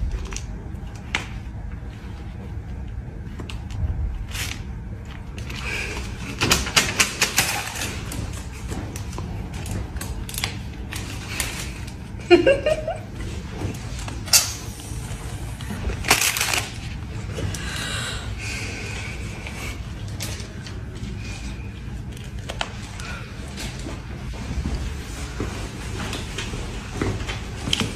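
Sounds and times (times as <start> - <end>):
paper envelope crinkling: 16.0 - 17.0.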